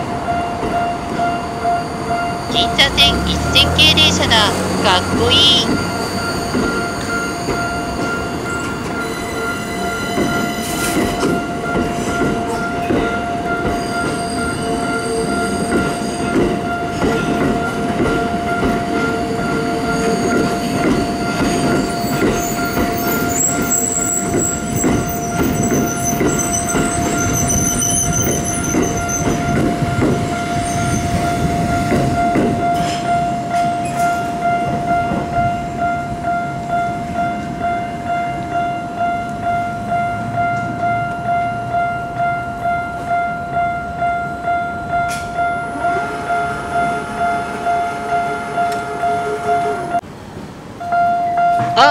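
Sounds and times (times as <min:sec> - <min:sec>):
crossing warning signal ringing: 0:00.8 - 0:50.0
train wheels clacking over rails: 0:05.7 - 0:35.4
train wheels squealing: 0:05.8 - 0:12.6, 0:13.6 - 0:16.4, 0:19.3 - 0:29.7, 0:30.3 - 0:31.5.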